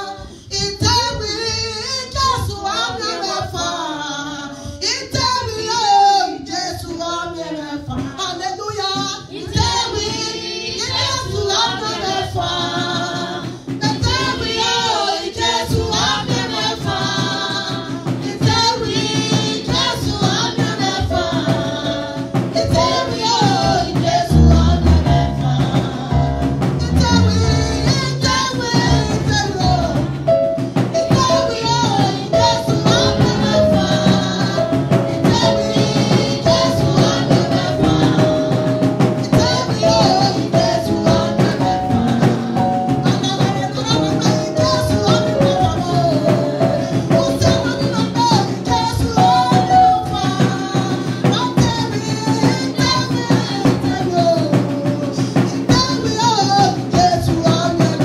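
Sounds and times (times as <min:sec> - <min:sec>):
woman singing into a microphone: 0:00.0 - 0:58.0
backing music: 0:09.3 - 0:54.4.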